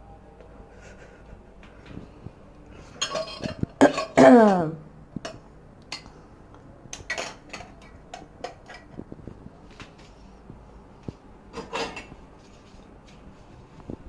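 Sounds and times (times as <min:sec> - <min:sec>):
kitchen utensils and dishes clinking: 0:02.8 - 0:06.1, 0:06.9 - 0:09.0, 0:11.5 - 0:12.2
person's throaty vocal sound: 0:03.9 - 0:04.8.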